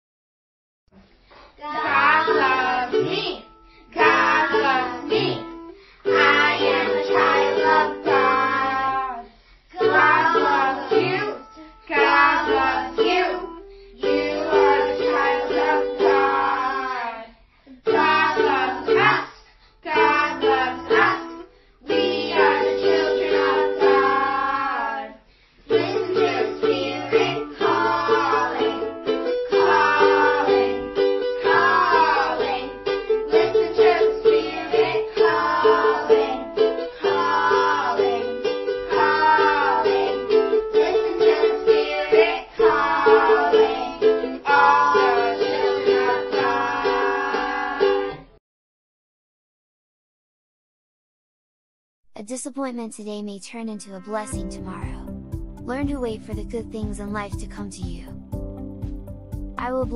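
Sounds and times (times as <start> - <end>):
children singing worship song: 1.4 - 48.3
ukulele strumming: 1.8 - 9.0, 9.8 - 16.9, 17.9 - 19.3, 19.9 - 24.9, 25.7 - 48.3, 52.6 - 59.9.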